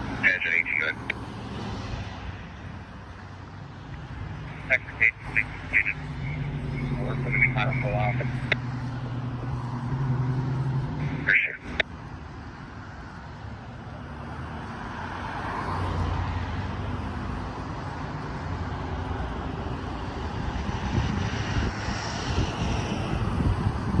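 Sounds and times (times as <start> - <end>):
cars passing: 0.0 - 24.0
low engine drone: 2.6 - 12.0
wind buffeting microphone: 20.2 - 24.0.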